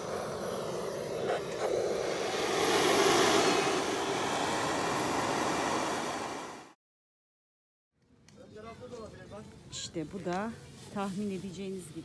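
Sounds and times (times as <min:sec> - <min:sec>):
gas torch hissing: 0:00.0 - 0:06.8.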